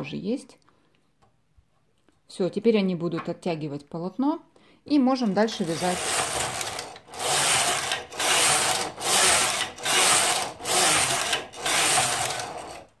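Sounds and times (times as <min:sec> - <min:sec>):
knitting machine carriage rasping: 0:05.3 - 0:13.0.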